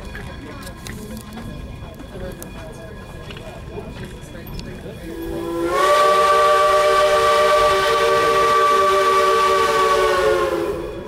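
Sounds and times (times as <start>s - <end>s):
steam locomotive whistle: 5.0s - 11.0s.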